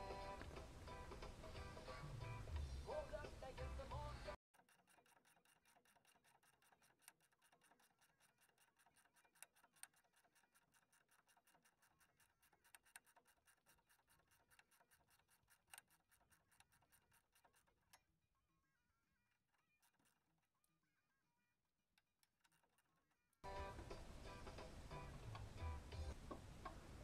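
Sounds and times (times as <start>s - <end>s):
faint fast ticking: 4.6s - 17.7s.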